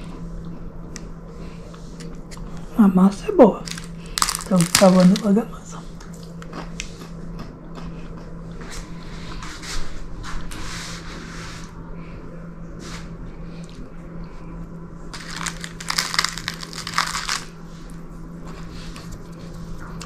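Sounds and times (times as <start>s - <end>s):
steady low hum: 0.0s - 20.0s
baking paper crinkling: 3.6s - 5.5s, 15.1s - 17.6s.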